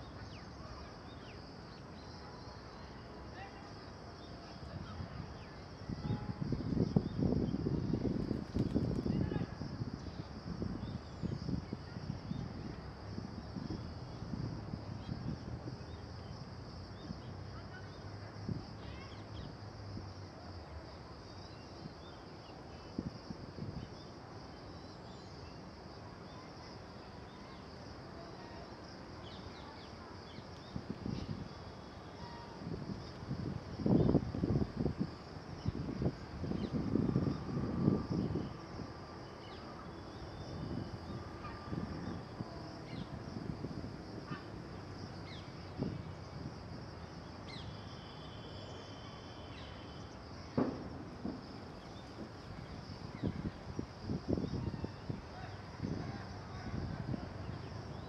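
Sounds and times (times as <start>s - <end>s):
high insect drone: 22.8s - 58.0s
dull thump: 50.6s - 51.6s.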